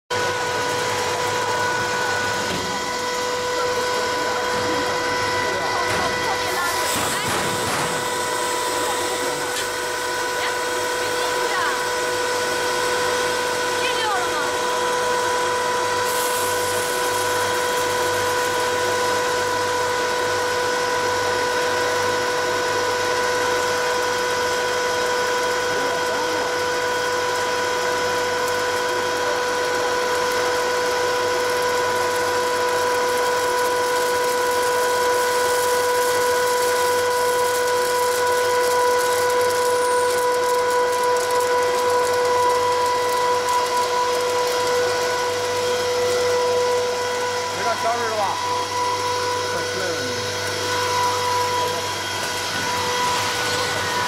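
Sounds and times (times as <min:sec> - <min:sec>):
popcorn machine blower whine: 0:00.1 - 0:54.0.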